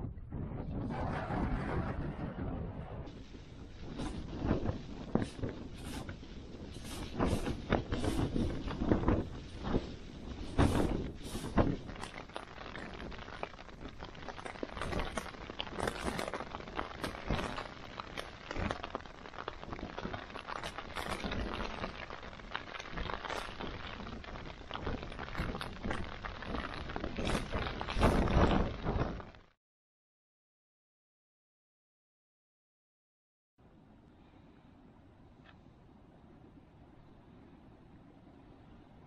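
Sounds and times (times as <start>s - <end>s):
tent fabric flapping in wind: 0.0s - 29.6s.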